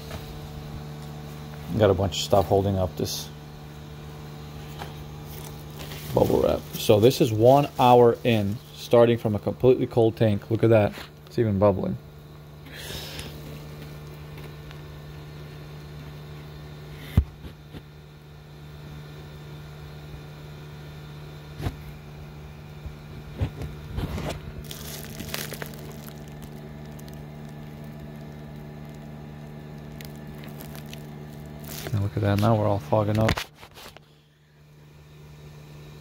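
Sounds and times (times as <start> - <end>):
low machine hum: 0.0 - 36.0
bubble wrap crinkling: 5.0 - 8.9, 24.0 - 32.6.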